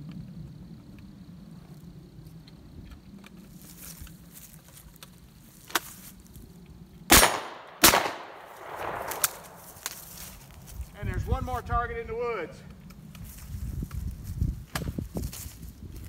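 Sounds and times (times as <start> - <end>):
shotgun shots: 7.1 - 10.1.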